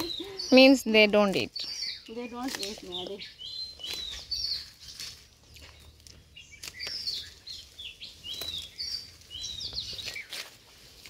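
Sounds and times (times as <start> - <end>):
leafy sprigs rustling and snapping: 0.0 - 11.0
small birds chirping: 0.0 - 11.0.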